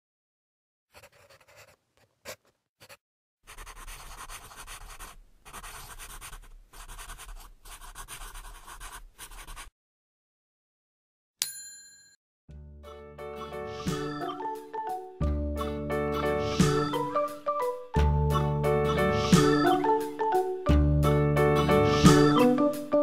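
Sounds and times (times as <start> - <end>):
pencil scribbling on paper: 0.9 - 9.7.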